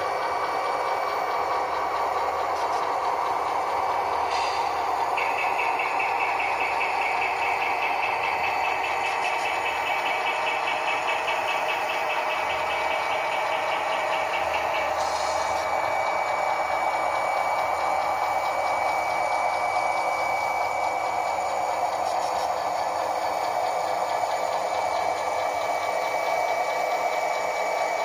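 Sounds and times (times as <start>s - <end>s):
model trains hum and rumble: 0.0s - 28.0s.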